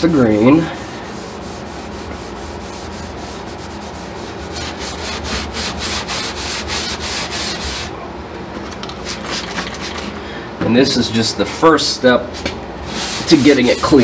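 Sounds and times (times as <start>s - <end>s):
steel wool scrubbing wood: 0.2s - 7.9s, 12.9s - 14.0s.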